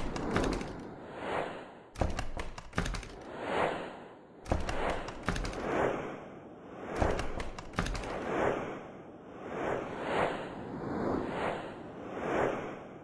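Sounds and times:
sharp clicks and taps: 0:00.0 - 0:00.8, 0:02.0 - 0:03.3, 0:04.5 - 0:05.7, 0:07.0 - 0:08.2.

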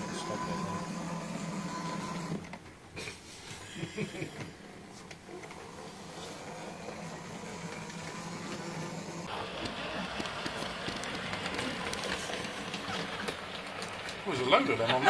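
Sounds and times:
model train motors whirring: 0:00.0 - 0:02.7, 0:03.9 - 0:15.0
light clicks of passing train: 0:09.6 - 0:14.2.

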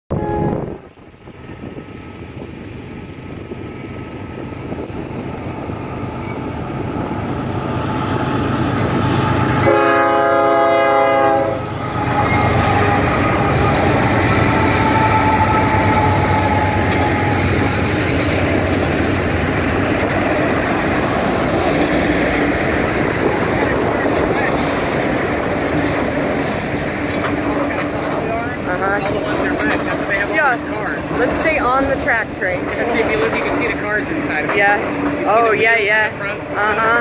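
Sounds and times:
train horn blast: 0:00.1 - 0:01.0, 0:09.2 - 0:17.7
diesel locomotive rumble: 0:00.1 - 0:37.0.

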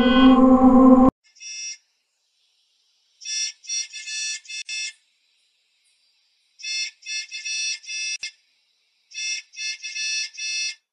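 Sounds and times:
high-pitched bus horn honks: 0:00.0 - 0:01.1.

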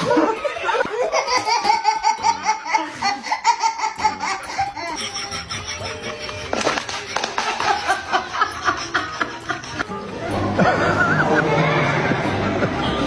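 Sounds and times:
baby laughing: 0:00.0 - 0:10.1.

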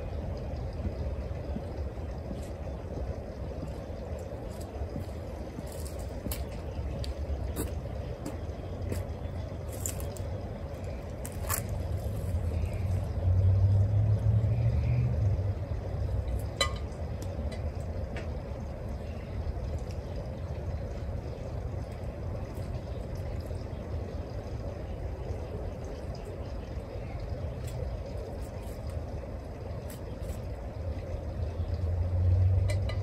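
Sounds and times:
outdoor background noise: 0:00.0 - 0:33.0
passing vehicle rumble: 0:11.7 - 0:17.1, 0:30.8 - 0:33.0.

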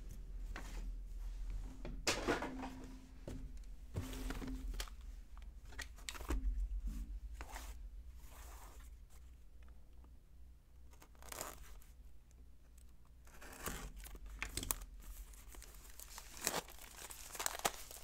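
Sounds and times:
cards and plastic sleeves rustling: 0:04.0 - 0:09.3, 0:10.9 - 0:12.0, 0:12.8 - 0:18.0.

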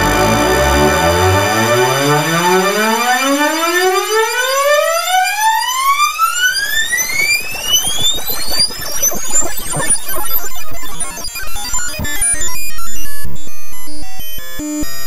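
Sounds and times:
synth tone rising in pitch: 0:00.0 - 0:05.4.

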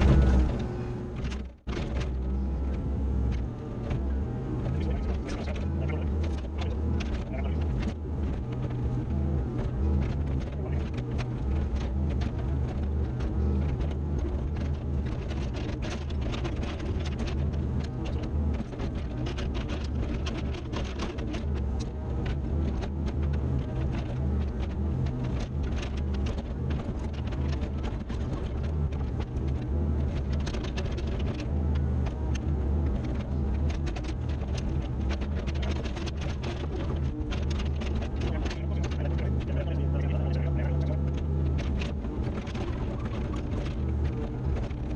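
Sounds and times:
excavator diesel engine running: 0:00.0 - 0:44.9
short clicks and rattles: 0:09.6 - 0:44.9.

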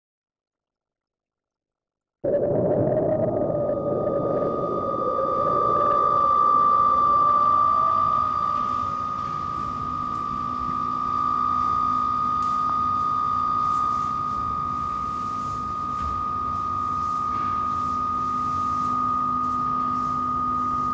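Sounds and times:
high-pitched electronic tone: 0:02.2 - 0:12.1
low steady hum: 0:02.2 - 0:20.9.

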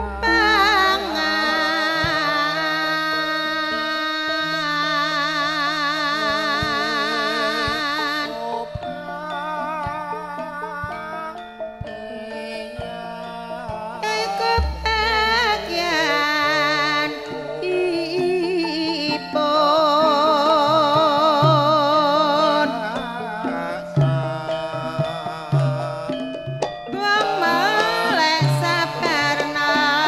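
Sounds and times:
woman singing with vibrato: 0:00.0 - 0:26.2, 0:26.9 - 0:30.0
gamelan music over loudspeakers: 0:00.0 - 0:30.0.

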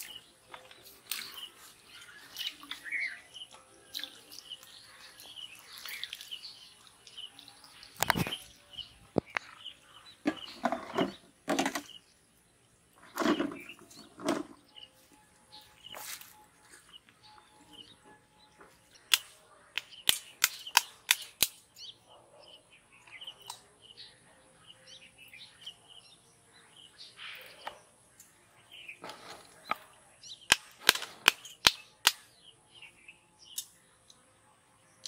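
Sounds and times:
small birds chirping: 0:00.0 - 0:35.0
sharp clicks: 0:19.1 - 0:21.6, 0:30.5 - 0:32.2.

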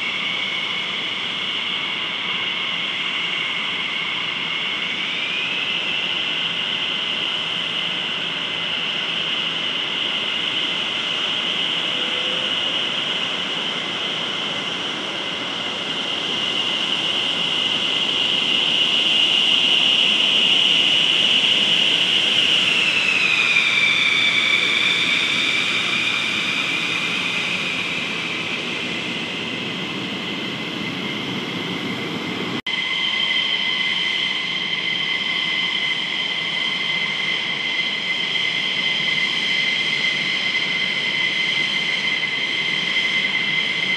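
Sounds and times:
jet engines whining: 0:00.0 - 0:43.9.

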